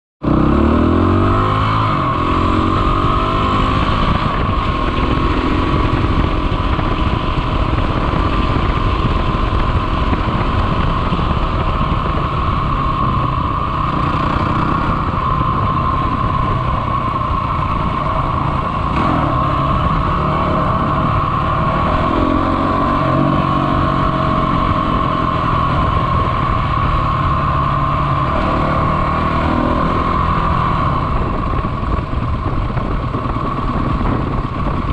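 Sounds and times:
dirt bike engine revving: 11.0 - 16.6, 17.4 - 31.3.

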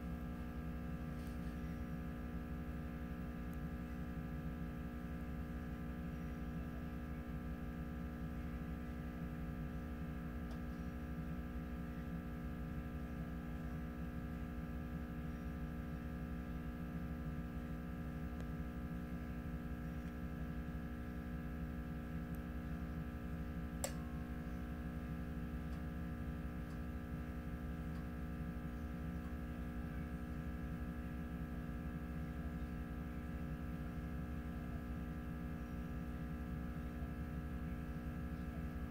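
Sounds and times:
electrical hum: 0.0 - 38.9
faint click: 23.8 - 24.0.

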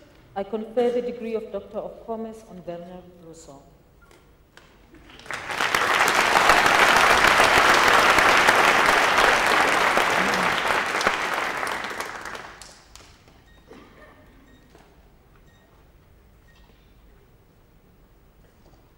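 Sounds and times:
audience applauding: 5.0 - 13.1.

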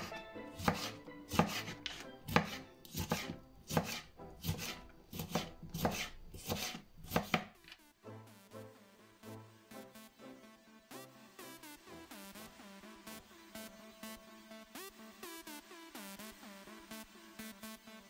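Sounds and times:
knife chopping on wooden board: 0.0 - 7.6.

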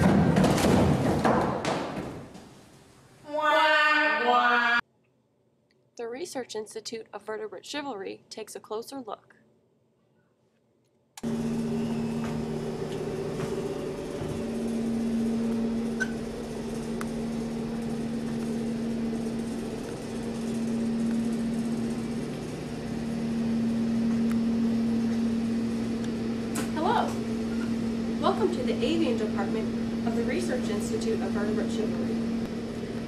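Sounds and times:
machine hum with hiss: 11.2 - 33.0.

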